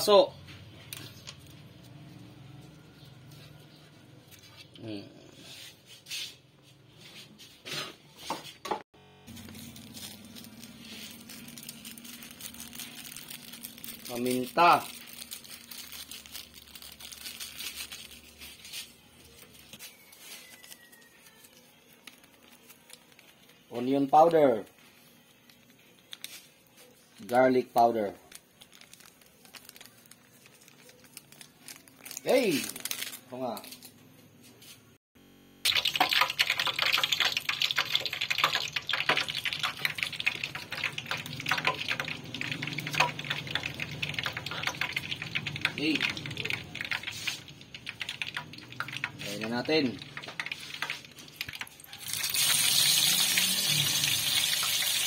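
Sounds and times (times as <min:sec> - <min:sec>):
pepper container rustling: 0:09.3 - 0:33.9, 0:35.7 - 0:55.0
oil crackling in a frying pan: 0:09.9 - 0:18.5, 0:35.7 - 0:55.0.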